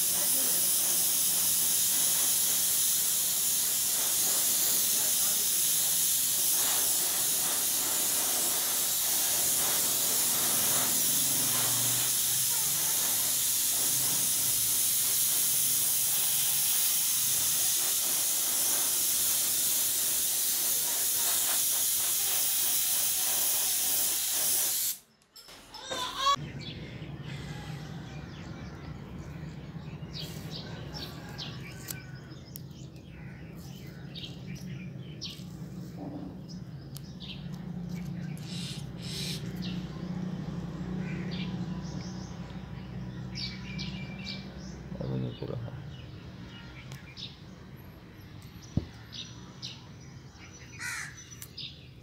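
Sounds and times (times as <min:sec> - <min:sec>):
spray gun hissing: 0:00.0 - 0:25.0, 0:38.4 - 0:39.7.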